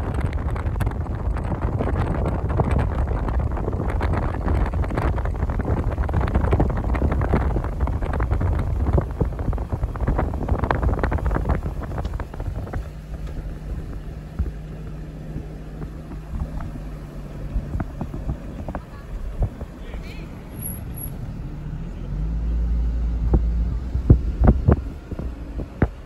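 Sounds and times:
low vehicle engine hum: 0.0 - 26.0
wind buffeting microphone: 0.0 - 26.0.

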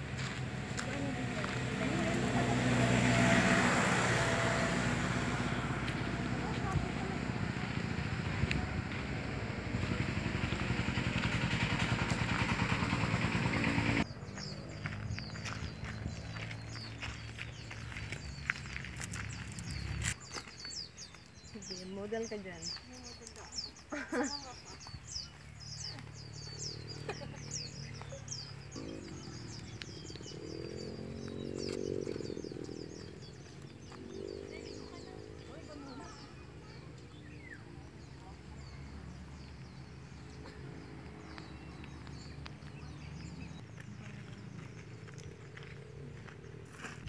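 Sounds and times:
small engine running: 0.0 - 18.0
birds chirping: 0.0 - 47.0
low hum: 28.7 - 33.9.

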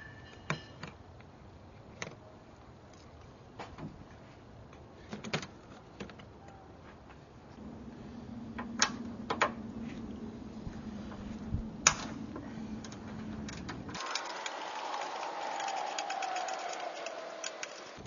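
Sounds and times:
low steady hum: 7.4 - 14.0
hiss with falling tone: 14.0 - 18.0.

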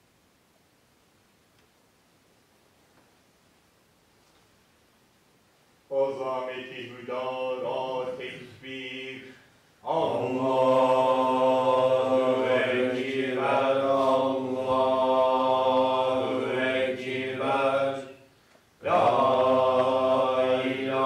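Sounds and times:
man chanting: 5.9 - 10.4.

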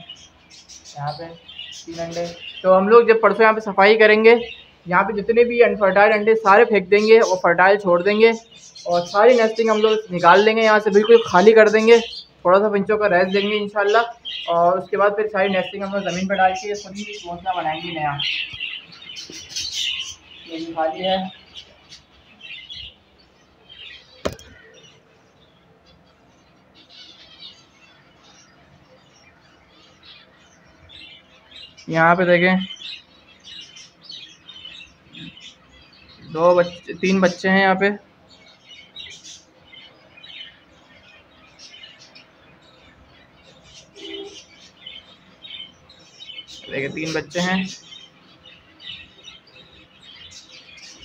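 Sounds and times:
finches chirping: 0.0 - 51.0
sharp knock: 24.2 - 24.6.

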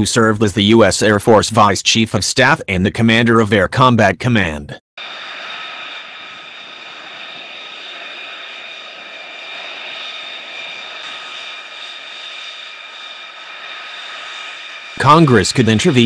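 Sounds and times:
jet engines whining: 5.0 - 16.0
rushing hiss: 5.0 - 16.0.

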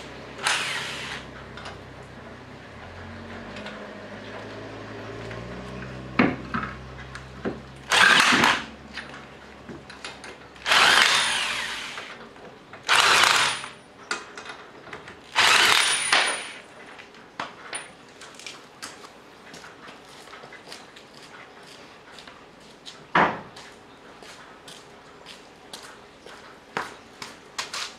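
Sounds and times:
electric impact wrench hammering: 0.0 - 1.7, 7.8 - 9.1, 10.6 - 12.2, 12.8 - 13.8, 15.3 - 16.6.

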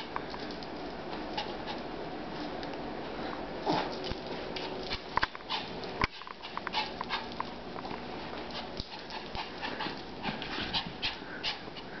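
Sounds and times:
dog claws clicking on floor: 0.0 - 1.8, 3.8 - 11.2
dog panting: 1.2 - 1.9, 4.5 - 7.6, 8.4 - 12.0.

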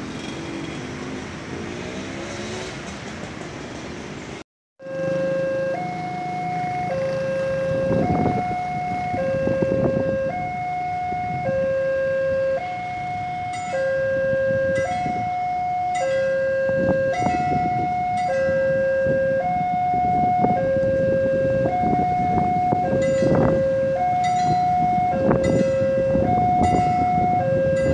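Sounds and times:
road traffic noise: 0.0 - 27.9
two-tone level crossing alarm: 4.8 - 27.9.

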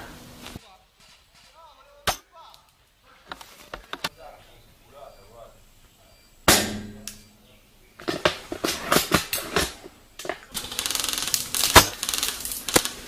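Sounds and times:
loud gunshot crack: 6.5 - 7.3
full-auto airsoft fire: 10.5 - 13.0.

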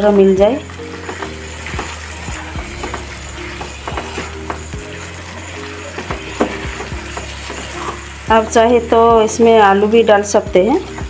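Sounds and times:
curry sizzling in a pan: 0.0 - 11.0
faint background music: 0.0 - 11.0
spoon knocking against pan: 0.9 - 2.0, 2.6 - 5.1, 5.9 - 8.1.

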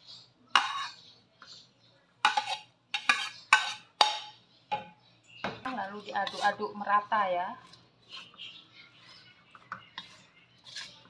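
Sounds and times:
metal spatula scraping a wok: 0.5 - 1.1, 2.2 - 4.4, 5.9 - 6.8, 7.6 - 11.0
spatula clanking on wok: 0.6 - 1.0, 2.2 - 5.0.

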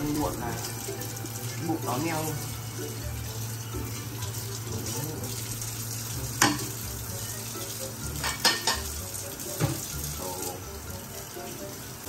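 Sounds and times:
tap water running into a sink: 0.0 - 12.0
crockery clacking: 6.4 - 6.8, 8.2 - 9.0.

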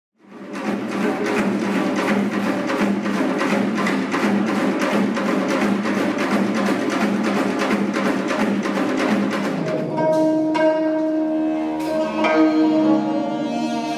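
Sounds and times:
fast barrel drumming: 0.2 - 10.0.

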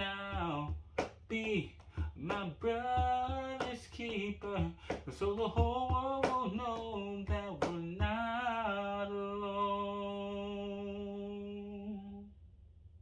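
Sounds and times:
cajon strikes: 0.0 - 8.4.

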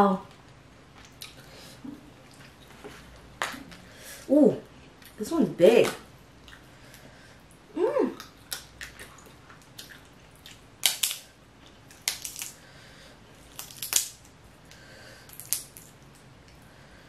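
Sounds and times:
crawfish shell cracking: 8.2 - 12.6, 13.5 - 16.2.

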